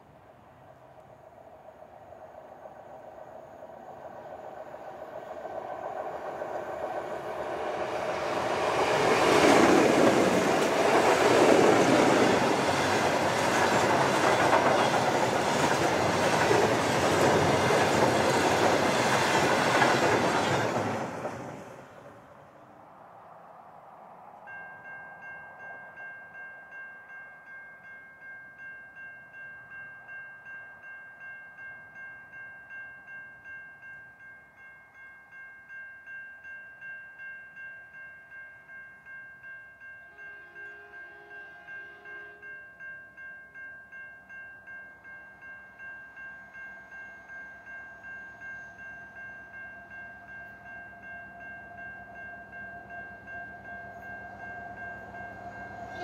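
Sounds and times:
diesel locomotive drone: 0.0s - 26.4s, 45.4s - 56.0s.

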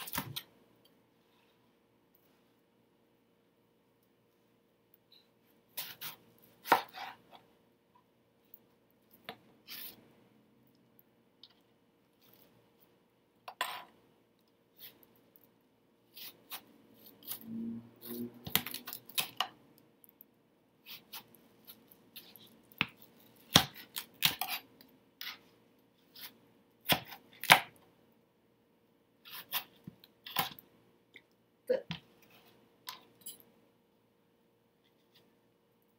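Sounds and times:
knife chopping melon on cutting board: 5.8s - 7.2s, 22.8s - 24.6s, 26.2s - 27.8s.

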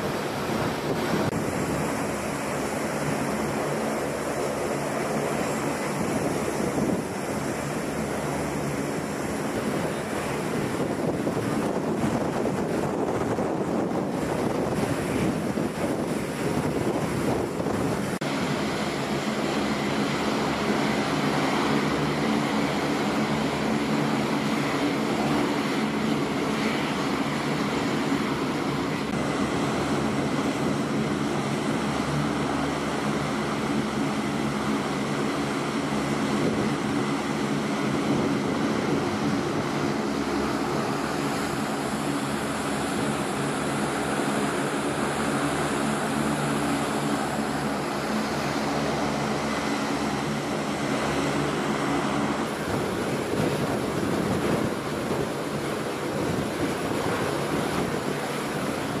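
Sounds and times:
turboprop engines and propeller drone: 0.0s - 59.0s.

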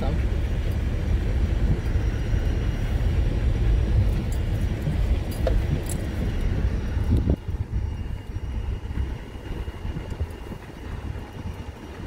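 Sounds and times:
tyres rumbling on gravel: 0.0s - 12.0s
sharp clicks and knocks: 4.1s - 6.3s.

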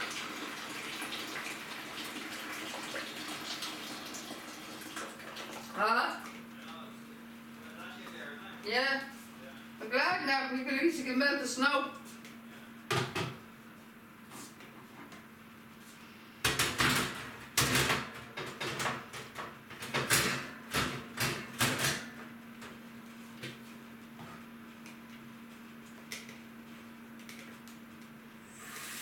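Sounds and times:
steady low hum: 5.6s - 18.4s.

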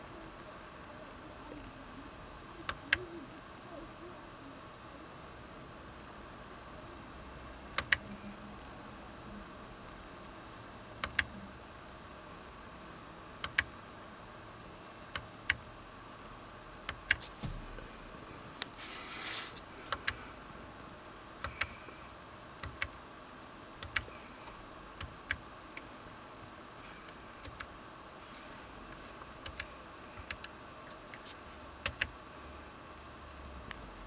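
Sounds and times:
soft hiss: 11.9s - 34.0s.

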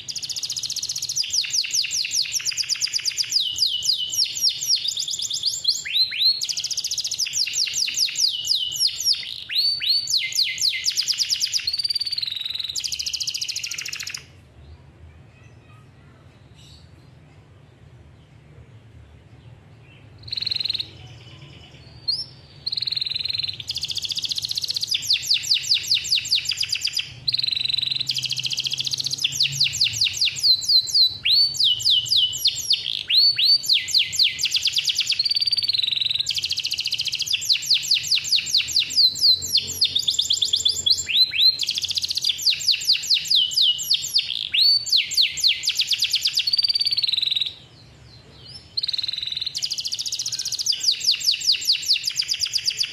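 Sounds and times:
canary singing trills: 0.0s - 14.4s, 19.4s - 52.9s.

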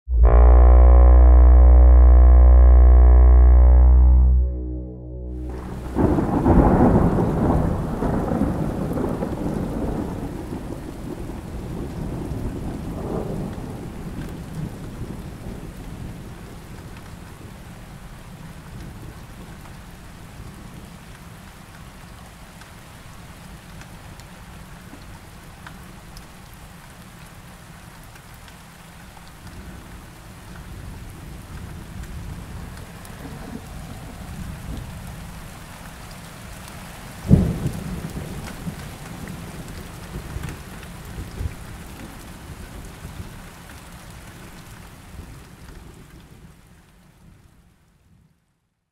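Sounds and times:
thunder rumbling: 3.9s - 17.5s, 30.7s - 35.8s, 37.2s - 43.4s
steady rain: 5.3s - 48.9s.

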